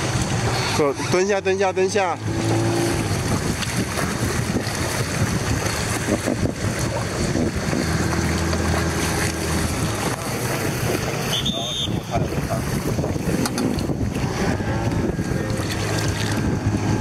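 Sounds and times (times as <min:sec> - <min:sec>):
rushing river water: 0:00.0 - 0:17.0
wind buffeting microphone: 0:00.0 - 0:17.0.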